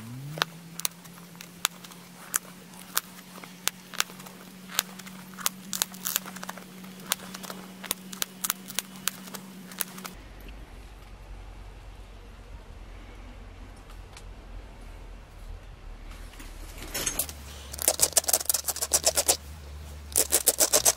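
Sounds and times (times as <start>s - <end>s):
steady low hum: 0.0s - 20.9s
flint flakes snapping: 0.3s - 10.2s, 17.7s - 19.4s, 20.1s - 20.9s.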